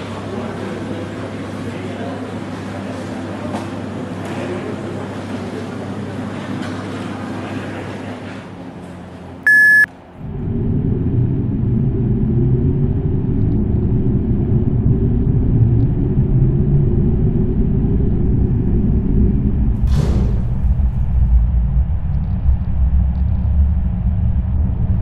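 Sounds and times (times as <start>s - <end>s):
electronic beep: 9.5s - 9.9s
lift rumbling: 9.5s - 25.0s.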